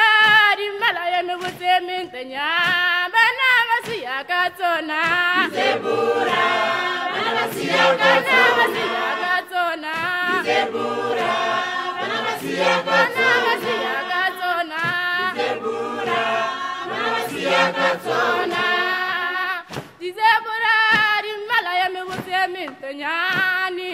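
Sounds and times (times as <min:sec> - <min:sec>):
choir singing: 0:04.6 - 0:19.7.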